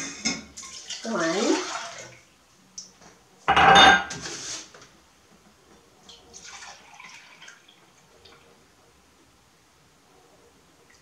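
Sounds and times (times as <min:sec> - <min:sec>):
milk pouring into cup: 0:06.2 - 0:08.5.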